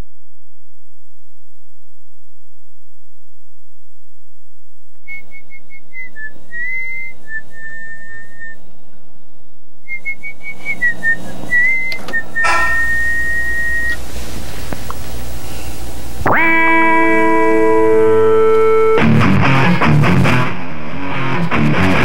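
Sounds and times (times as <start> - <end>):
person whistling a tune: 9.9 - 14.0
music with loud struck note: 12.4 - 13.5, 16.3 - 20.4.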